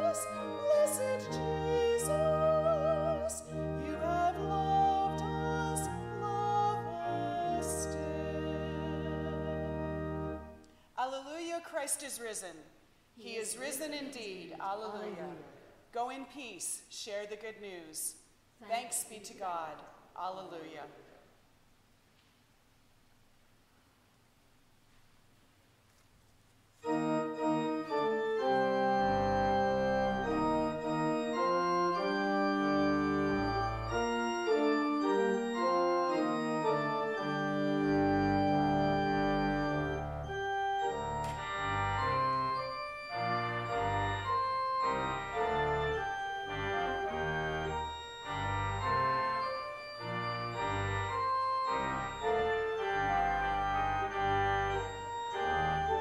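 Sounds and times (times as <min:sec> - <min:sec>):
church organ chords: 0:00.0 - 0:10.7, 0:26.8 - 0:56.0.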